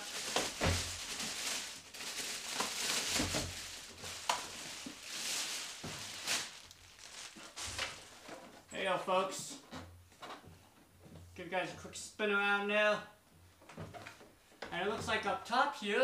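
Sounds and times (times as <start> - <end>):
plastic bag rustling: 0.0 - 8.4.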